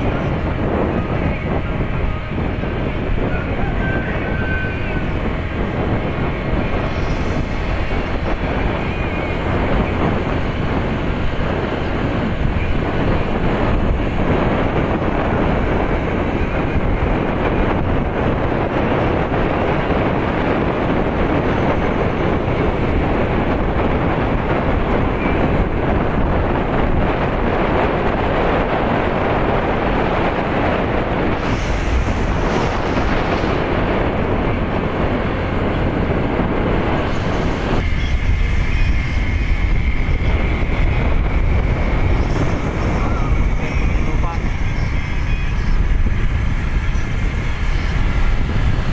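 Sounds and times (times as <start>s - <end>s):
vehicle road noise: 0.0s - 48.9s
wind rushing over microphone: 0.0s - 48.9s.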